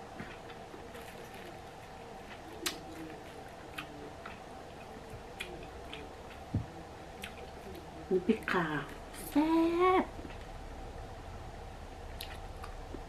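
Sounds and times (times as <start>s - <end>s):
soft clicks and taps of eating: 0.2s - 1.6s, 2.2s - 7.9s, 12.2s - 13.0s.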